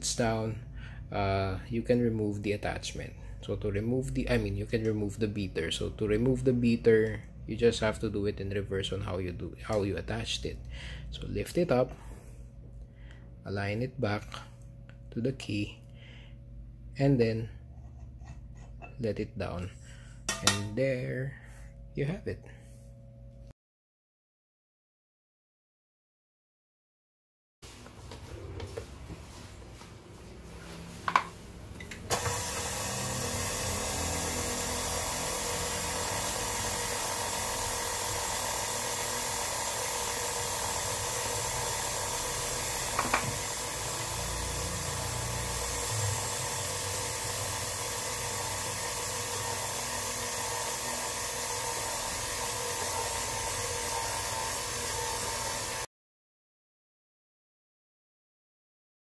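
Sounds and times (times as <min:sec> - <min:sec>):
stand mixer motor running: 0:31.9 - 0:55.9.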